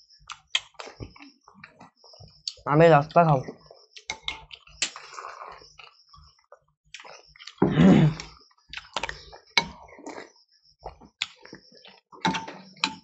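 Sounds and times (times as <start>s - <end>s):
mouth sounds of eating: 4.5s - 6.0s, 7.0s - 12.0s.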